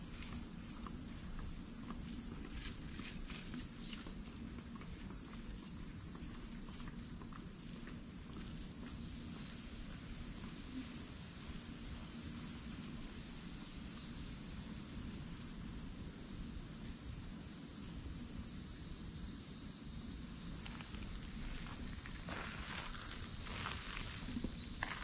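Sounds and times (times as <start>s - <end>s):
insects buzzing drone: 0.0s - 25.0s.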